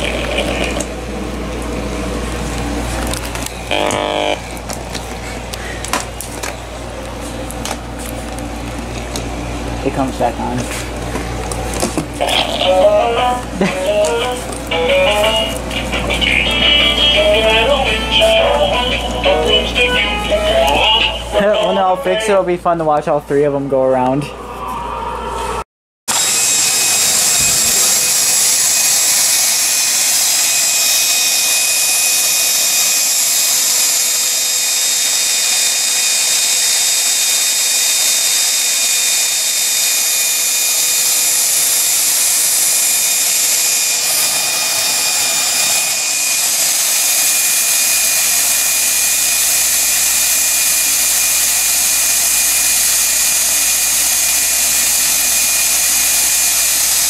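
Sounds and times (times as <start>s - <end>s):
cordless drill running: 0.0s - 1.0s, 3.0s - 4.7s, 26.1s - 57.0s.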